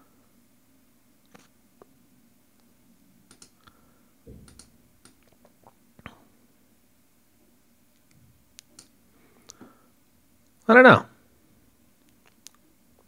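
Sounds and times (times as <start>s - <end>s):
mouse and keyboard clicks: 3.3s - 3.6s, 4.4s - 5.3s.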